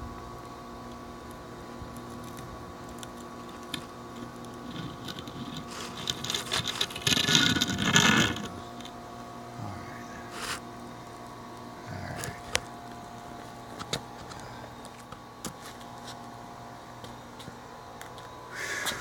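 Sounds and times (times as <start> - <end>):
steady hum: 0.0 - 19.0
rustling and scraping: 3.5 - 9.0, 12.0 - 16.3.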